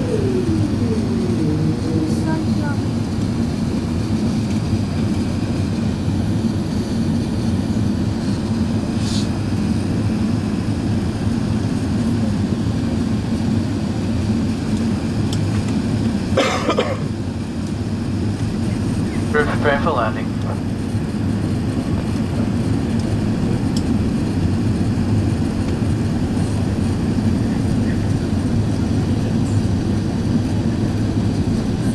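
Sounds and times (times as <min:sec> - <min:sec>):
person's voice: 0:00.0 - 0:02.9, 0:19.1 - 0:20.6
airplane cabin roar: 0:00.0 - 0:31.9.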